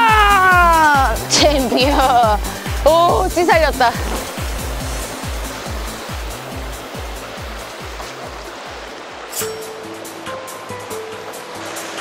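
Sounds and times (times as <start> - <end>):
sea waves on rocky shore: 0.0 - 12.0
music with deep bass beat: 0.1 - 8.9.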